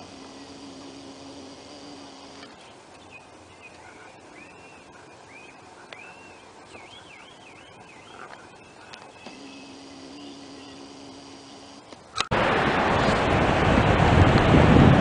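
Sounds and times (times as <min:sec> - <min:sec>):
bird singing whistled notes: 0:02.5 - 0:10.9
sharp clicks: 0:08.9 - 0:12.3.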